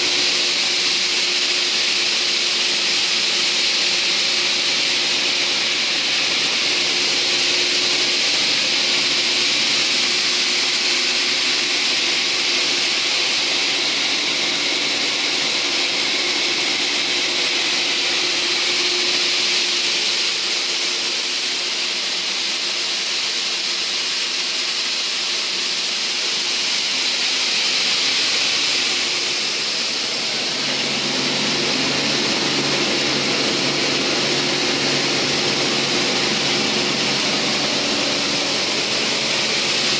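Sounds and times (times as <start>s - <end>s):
saw blades whining: 27.8s - 39.9s
deep hum: 28.8s - 39.9s.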